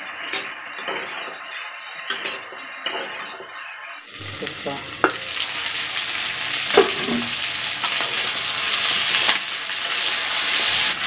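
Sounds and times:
spatula scraping a pan: 0.0 - 4.1, 6.7 - 10.9
food sizzling in a pan: 0.0 - 11.0.

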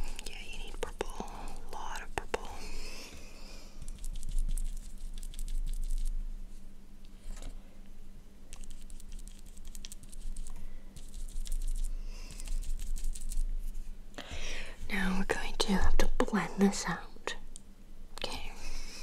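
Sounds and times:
applicator tapping and scratching microphone: 3.9 - 6.1, 8.5 - 13.4.

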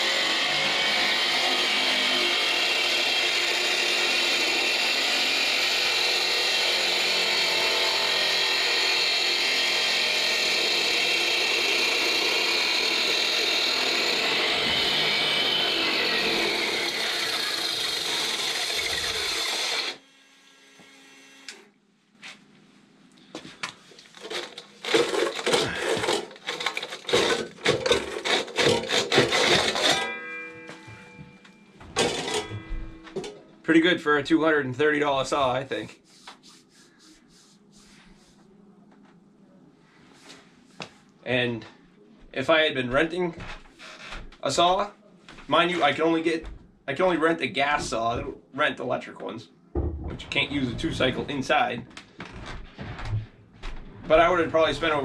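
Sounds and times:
concrete saw cutting: 0.0 - 21.6, 24.3 - 30.2, 32.0 - 33.4
short knocks and clatter: 49.8 - 54.1.

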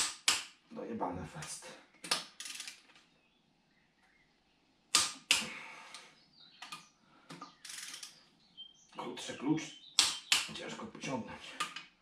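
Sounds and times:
wrench clicking on bolts: 2.1 - 2.8, 7.6 - 8.1.

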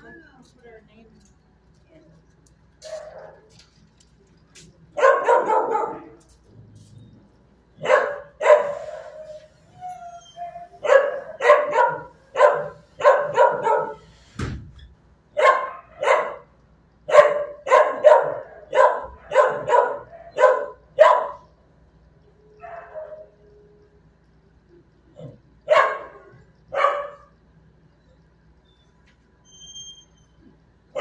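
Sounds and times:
dog barking: 5.0 - 6.2, 7.8 - 9.4, 10.8 - 14.1, 15.4 - 16.5, 17.1 - 21.5, 22.6 - 23.4, 25.2 - 27.3
dog whining: 8.6 - 14.0.

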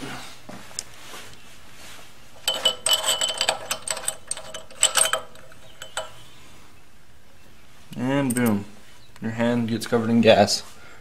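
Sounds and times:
wrench metallic clicks: 2.4 - 6.2.

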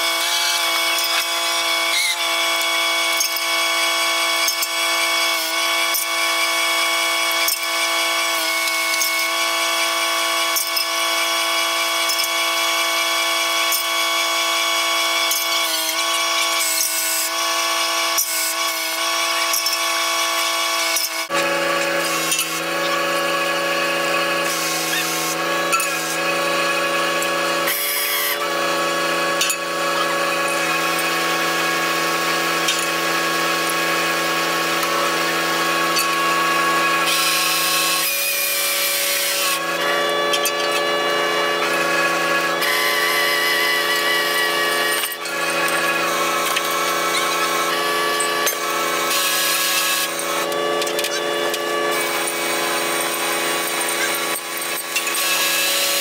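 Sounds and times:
deck machinery whining: 38.5 - 55.2.

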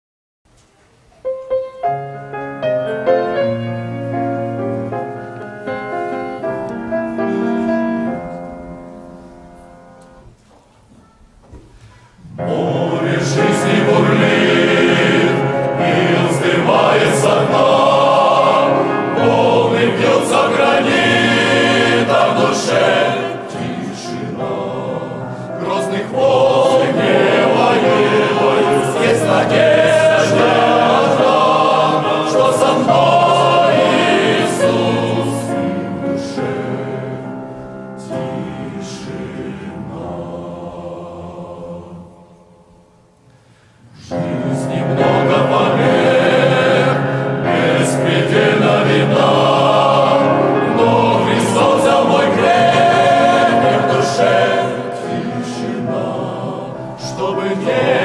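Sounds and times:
men's choir singing a hymn: 12.2 - 42.8, 43.9 - 58.0.

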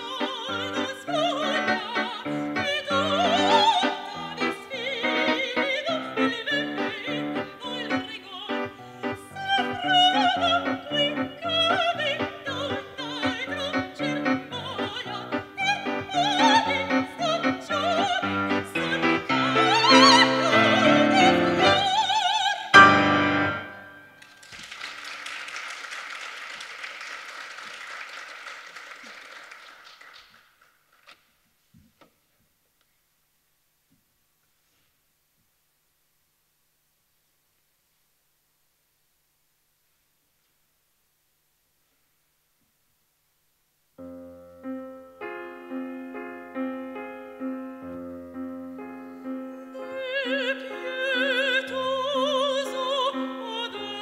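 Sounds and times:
operatic soprano singing: 0.0 - 23.8, 49.6 - 54.0
grand piano: 0.0 - 24.5, 44.0 - 54.0
audience applause: 24.2 - 31.1.

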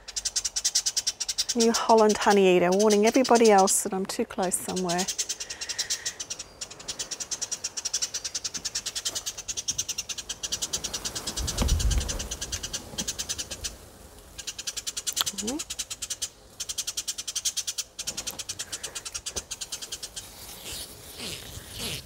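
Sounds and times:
bird alarm call chatter: 0.0 - 22.0.

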